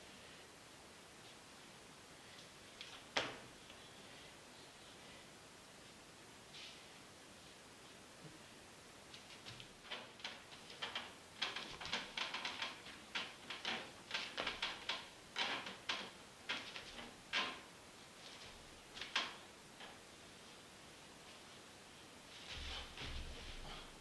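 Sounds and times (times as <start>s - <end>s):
footsteps on tiled floor: 22.3s - 23.9s.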